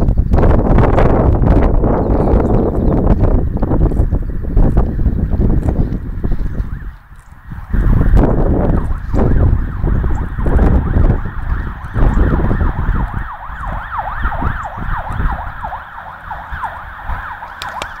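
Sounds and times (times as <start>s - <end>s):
loud low rumbling: 0.0s - 18.0s
siren wailing: 4.7s - 18.0s.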